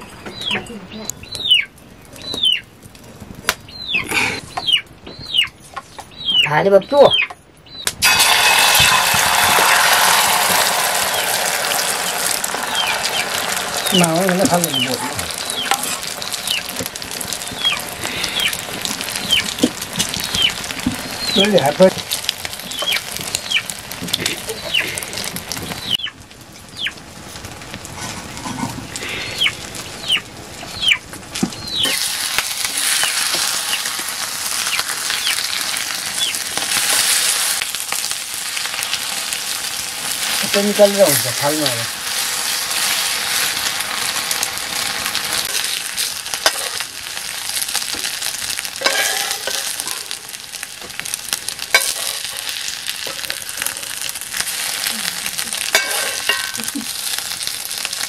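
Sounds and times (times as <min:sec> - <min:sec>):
egg and onion sizzling in pan: 0:07.9 - 0:58.0
metal utensils scraping a pan: 0:08.0 - 0:23.0, 0:27.9 - 0:28.9, 0:45.3 - 0:46.8, 0:48.7 - 0:50.2, 0:51.6 - 0:54.9, 0:55.5 - 0:56.8.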